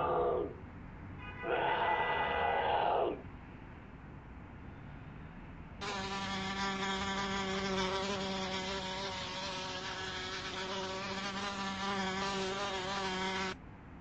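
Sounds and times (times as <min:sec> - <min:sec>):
wasp buzzing: 0:05.8 - 0:13.6.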